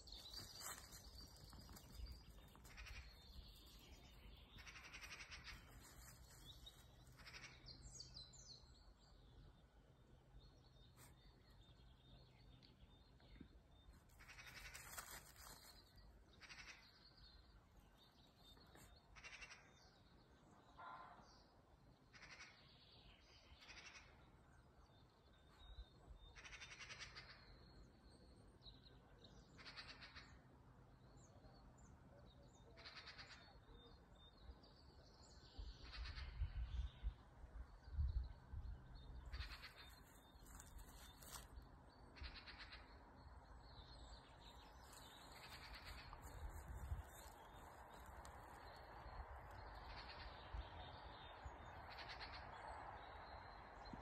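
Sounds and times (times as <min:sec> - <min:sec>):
faint bird calls: 0:00.0 - 0:07.9, 0:14.0 - 0:15.8, 0:16.4 - 0:17.1, 0:18.6 - 0:20.0, 0:22.0 - 0:22.7, 0:23.6 - 0:24.2, 0:26.2 - 0:27.8, 0:29.5 - 0:30.5, 0:32.6 - 0:34.0, 0:35.7 - 0:37.1, 0:39.2 - 0:53.2
dog rustling in dry leaves: 0:00.1 - 0:02.7, 0:14.3 - 0:15.9, 0:39.5 - 0:41.5, 0:46.2 - 0:48.6.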